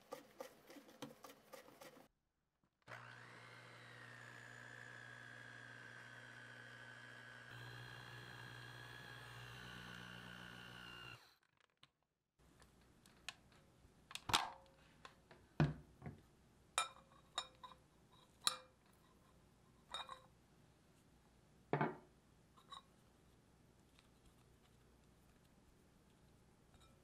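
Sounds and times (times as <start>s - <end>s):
hand mixer motor running: 2.9s - 11.4s.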